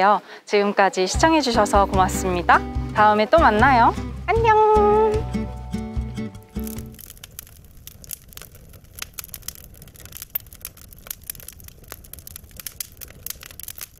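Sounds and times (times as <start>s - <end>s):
low fire hiss: 0.0s - 13.9s
campfire crackling and popping: 1.2s - 13.9s.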